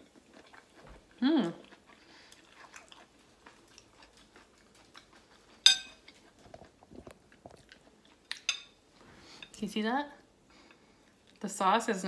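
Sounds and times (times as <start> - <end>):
quiet chewing: 0.0 - 9.6, 10.5 - 11.5
fork clinking on ceramic plate: 5.6 - 6.0, 8.4 - 8.8.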